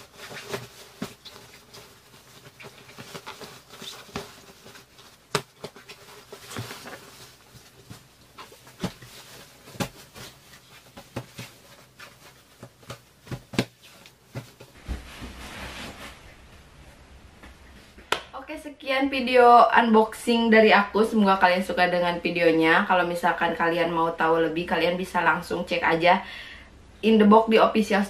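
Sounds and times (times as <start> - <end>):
fabric rustling: 0.0 - 17.0.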